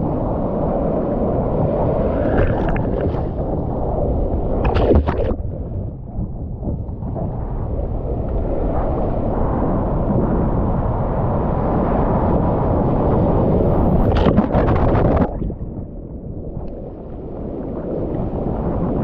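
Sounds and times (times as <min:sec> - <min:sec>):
ocean surf rushing: 0:00.0 - 0:06.0
wave breaking with crackling splash: 0:01.9 - 0:05.8, 0:13.6 - 0:15.6.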